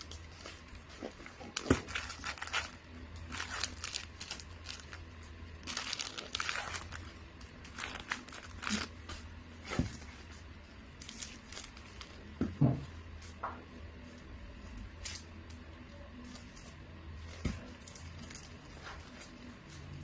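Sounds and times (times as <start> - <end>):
wrapping paper rustling: 0.0 - 12.3, 16.2 - 20.0.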